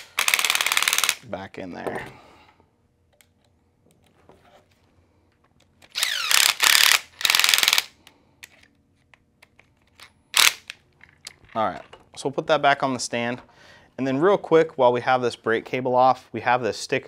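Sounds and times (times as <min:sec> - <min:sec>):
screwdriver ratcheting clicks: 0:00.0 - 0:01.2, 0:05.8 - 0:08.6, 0:09.4 - 0:11.5
faint handling noises: 0:01.7 - 0:05.9.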